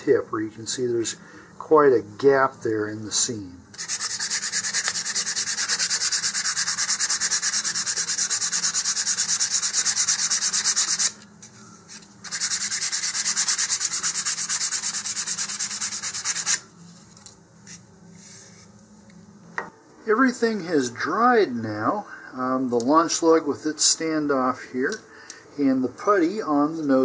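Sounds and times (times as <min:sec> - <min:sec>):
sandpaper rubbing on plastic: 0:03.8 - 0:11.2, 0:12.2 - 0:16.6.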